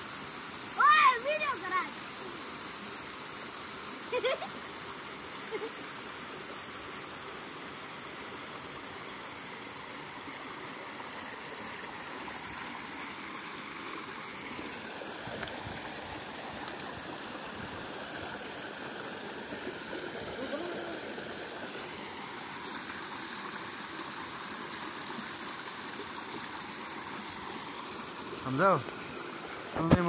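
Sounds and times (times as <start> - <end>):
stream flowing over stones: 0.0 - 30.0.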